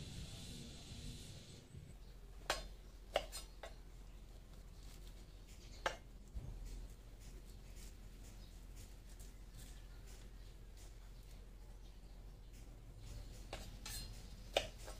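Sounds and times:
steady high hiss: 0.0s - 3.5s.

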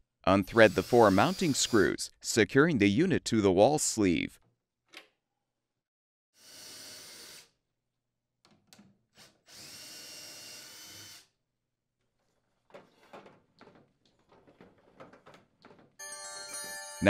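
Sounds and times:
cordless drill whirring: 9.2s - 11.3s.

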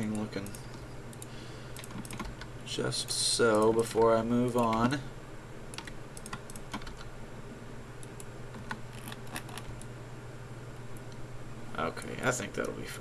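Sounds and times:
low electrical hum: 0.0s - 13.0s
computer keyboard clicks: 1.2s - 2.5s, 5.8s - 7.1s.

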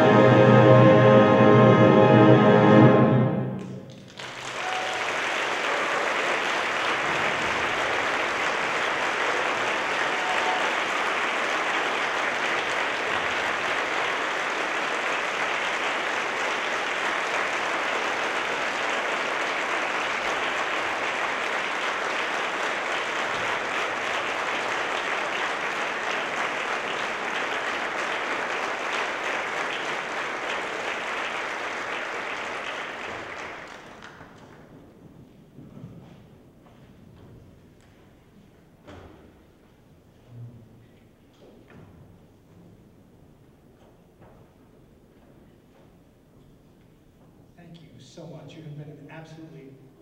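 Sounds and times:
audience applauding: 3.6s - 35.0s.

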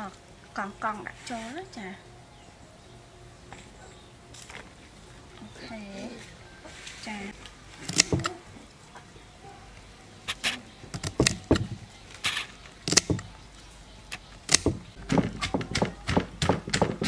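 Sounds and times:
knife cutting beans: 7.9s - 8.3s
wooden pestle pounding in mortar: 11.0s - 11.8s, 14.5s - 17.0s.

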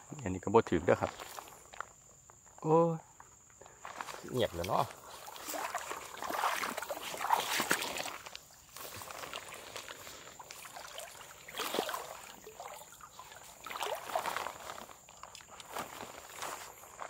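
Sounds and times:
grass rustling: 3.7s - 17.0s
footsteps wading through water: 3.8s - 17.0s.

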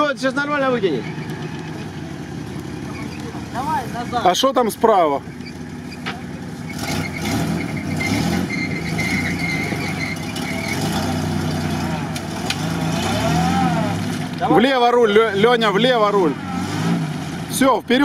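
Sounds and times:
engine revving in mud: 6.5s - 18.0s.

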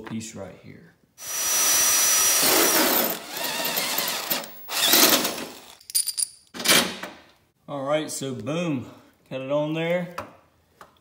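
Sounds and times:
drill whining through metal: 1.2s - 5.8s.

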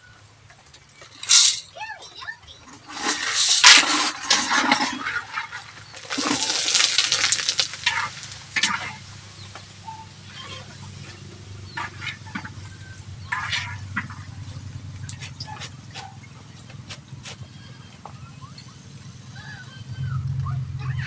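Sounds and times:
hot oil sizzling in a wok: 2.8s - 11.0s.

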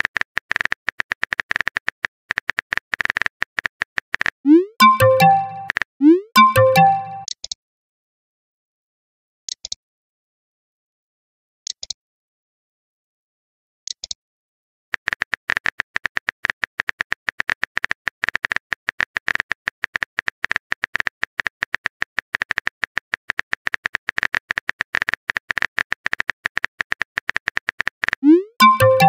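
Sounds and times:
phone keyboard typing clicks: 4.6s - 7.4s.

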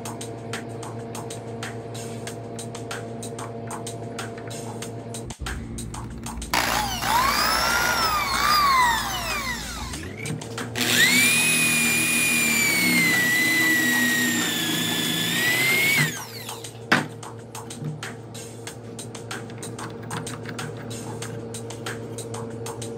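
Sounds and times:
electric drill boring into wood: 6.5s - 16.7s.

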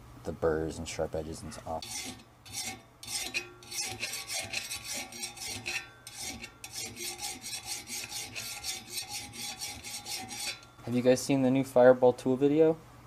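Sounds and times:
hand file rasping on steel: 1.8s - 10.7s.

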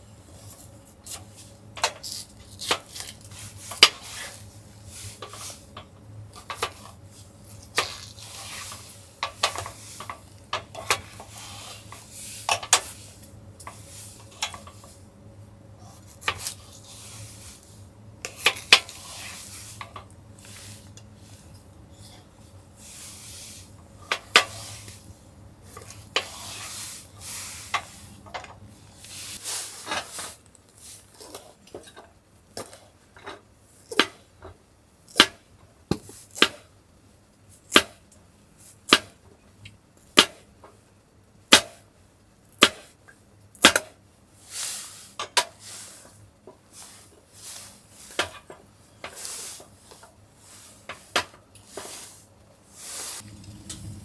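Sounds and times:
soft scraping and rustling: 0.0s - 15.1s, 15.7s - 33.4s, 44.4s - 54.0s.

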